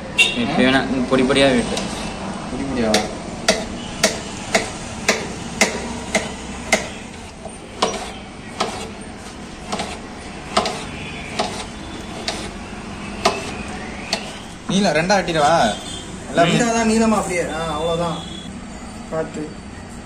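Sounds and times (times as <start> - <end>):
knife tapping on metal plate: 2.9 - 7.0, 10.5 - 10.8.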